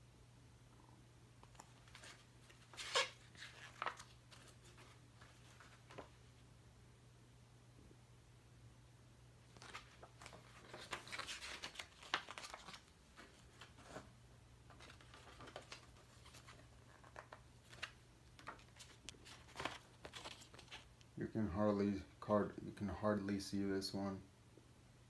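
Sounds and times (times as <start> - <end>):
paper pages rustling: 1.4 - 6.3, 9.5 - 14.1, 14.7 - 21.0.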